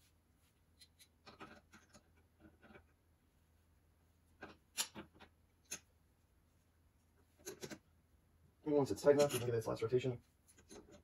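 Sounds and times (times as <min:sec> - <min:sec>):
metal bolts clicking and scraping: 0:07.4 - 0:07.8, 0:09.0 - 0:09.8.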